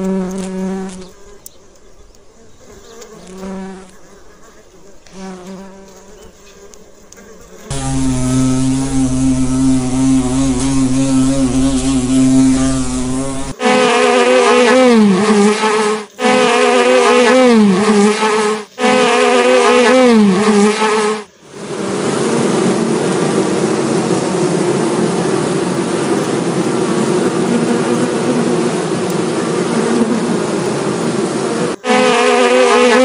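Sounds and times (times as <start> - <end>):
bees buzzing: 7.4 - 22.1, 26.0 - 33.0.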